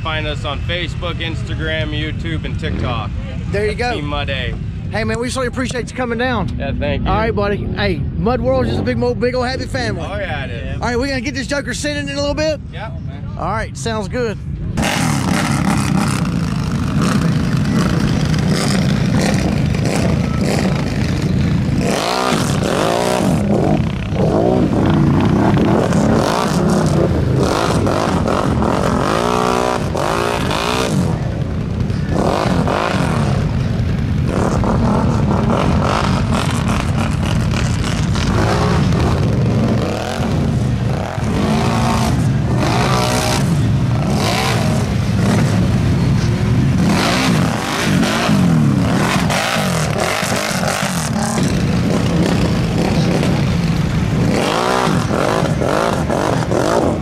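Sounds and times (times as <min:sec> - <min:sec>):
engine revving: 0:14.6 - 0:57.0.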